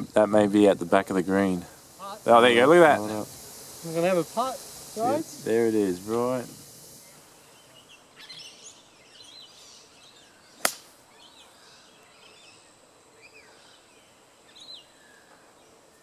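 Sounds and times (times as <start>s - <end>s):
birds chirping: 0.0s - 16.0s
golf club striking ball: 10.6s - 10.9s.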